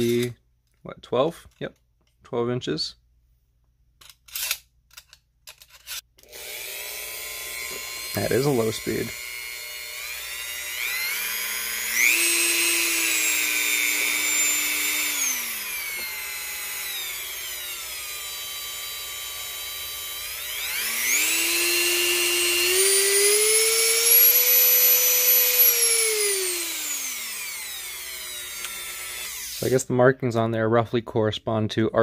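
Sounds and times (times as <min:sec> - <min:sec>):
rotary tool motor whine: 0:05.6 - 0:29.8.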